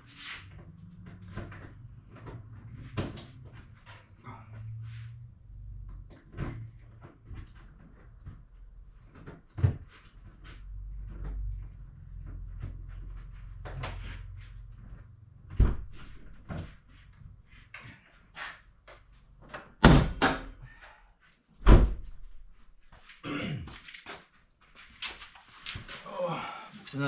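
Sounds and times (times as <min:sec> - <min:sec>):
truck door heavy thuds: 0:19.8 - 0:20.5, 0:21.6 - 0:22.0.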